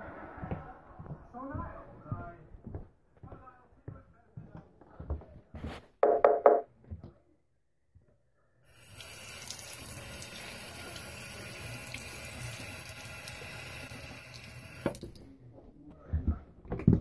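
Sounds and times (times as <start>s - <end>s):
tap water splashing into sink: 8.9s - 15.3s.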